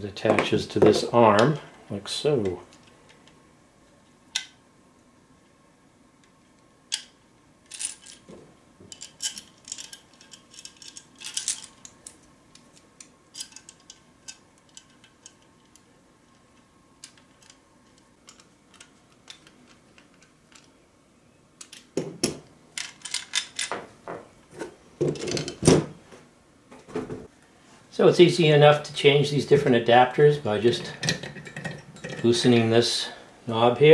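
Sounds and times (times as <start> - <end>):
metal clicks and clinks: 8.9 - 15.8.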